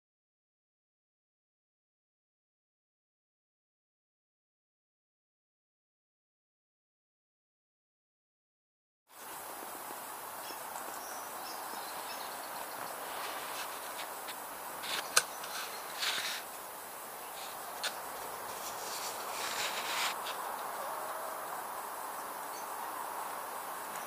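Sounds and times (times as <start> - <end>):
steady hiss: 9.1 - 24.0
high thin insect buzzing: 12.5 - 22.2
brief rustles: 13.1 - 16.5, 17.4 - 20.4.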